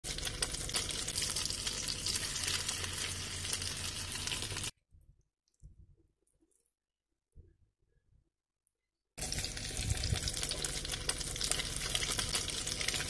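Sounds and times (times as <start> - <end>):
fish frying in hot oil: 0.0 - 4.7, 9.2 - 13.0.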